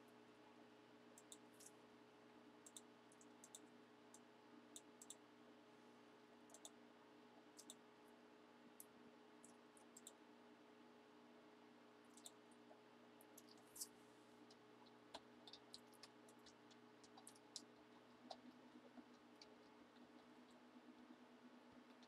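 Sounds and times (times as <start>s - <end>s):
low electrical hum: 0.0s - 22.0s
computer mouse clicking: 1.2s - 1.7s, 2.6s - 4.2s, 4.8s - 5.2s, 6.5s - 6.8s, 7.5s - 7.8s, 8.8s - 10.2s, 12.1s - 12.4s, 14.5s - 21.1s.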